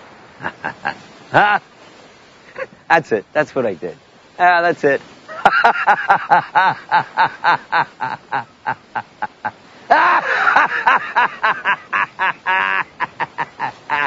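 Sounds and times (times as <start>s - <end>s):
person laughing: 0.4s - 1.6s, 5.3s - 14.0s.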